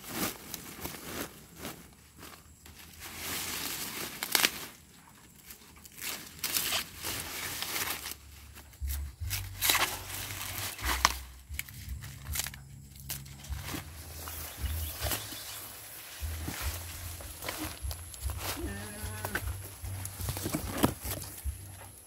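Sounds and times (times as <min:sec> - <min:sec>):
corn leaves rustling and tearing: 0:00.0 - 0:22.0
corn ears snapping: 0:03.8 - 0:04.8, 0:05.8 - 0:22.0.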